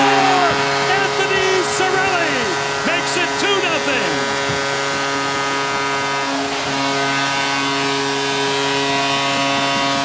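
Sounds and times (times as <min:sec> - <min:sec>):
arena crowd cheering: 0:00.0 - 0:04.3
goal horn blast: 0:00.0 - 0:10.0.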